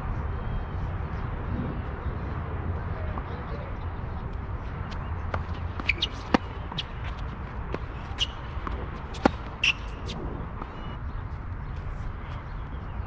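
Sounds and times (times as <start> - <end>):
steady low rumble: 0.0 - 12.8
tennis balls bouncing and struck: 4.9 - 10.8.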